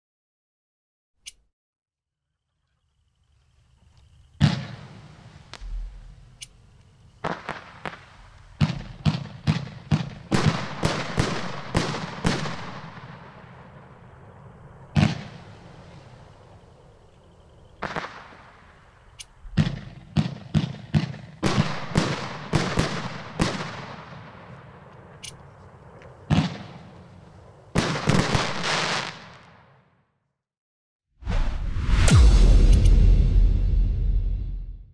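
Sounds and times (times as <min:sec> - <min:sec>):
fireworks shots and bursts: 0:04.4 - 0:30.0.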